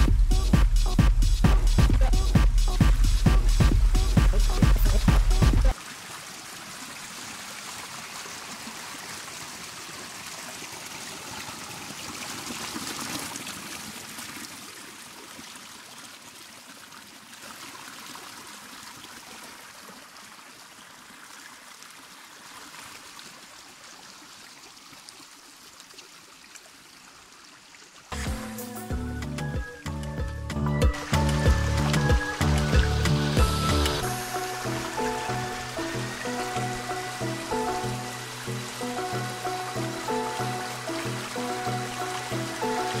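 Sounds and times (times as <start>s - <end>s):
electronic dance music: 0.0s - 5.7s, 28.1s - 43.0s
stream trickling over rocks: 3.8s - 28.6s, 30.8s - 43.0s.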